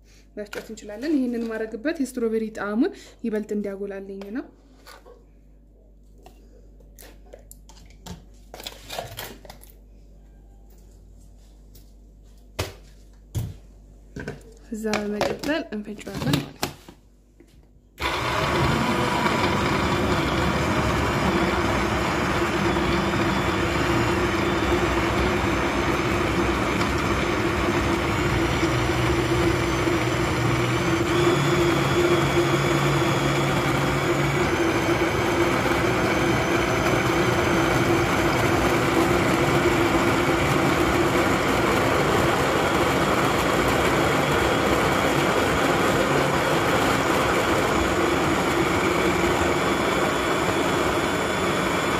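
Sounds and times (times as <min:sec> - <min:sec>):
blender motor whirring: 0:18.0 - 0:51.9.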